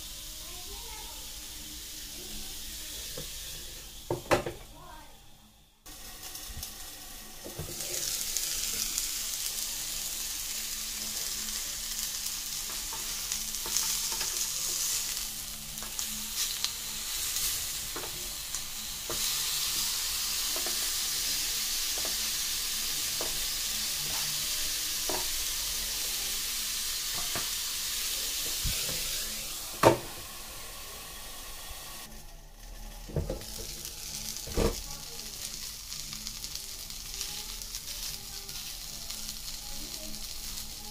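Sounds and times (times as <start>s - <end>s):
onions sizzling on a grill: 0.0s - 40.9s
utensils knocking on grill: 25.0s - 25.3s, 29.8s - 30.2s.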